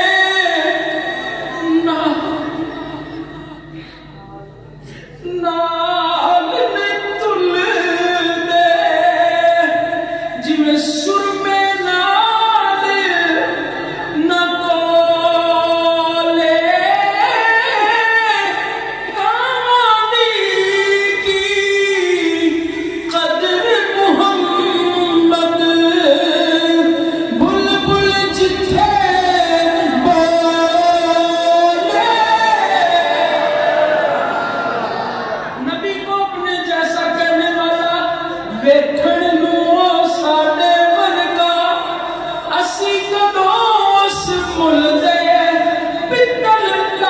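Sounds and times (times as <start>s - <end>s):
person singing unaccompanied: 14.2s - 34.0s, 35.6s - 47.0s.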